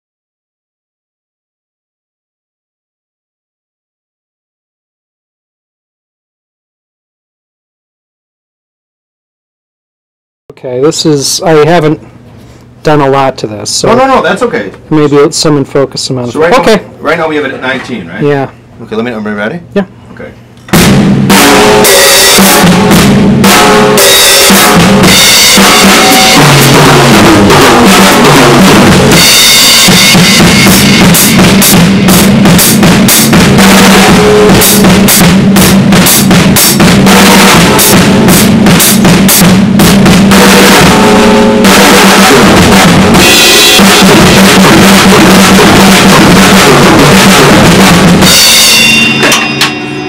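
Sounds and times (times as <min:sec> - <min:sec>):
bass drum: 0:20.7 - 0:48.8
snare drum: 0:20.7 - 0:49.4
cymbals: 0:20.7 - 0:50.0.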